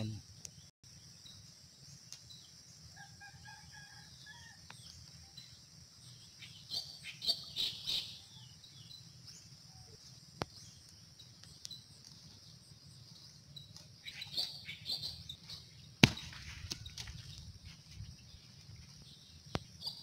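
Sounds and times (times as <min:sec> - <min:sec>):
insects droning: 0:00.0 - 0:20.0
rooster crowing: 0:03.0 - 0:04.6.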